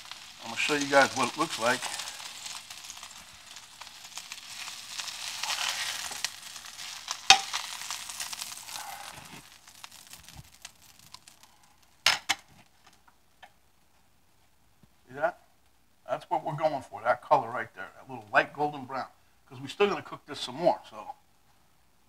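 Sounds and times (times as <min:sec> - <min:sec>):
oil sizzling in a frying pan: 0:00.0 - 0:12.5.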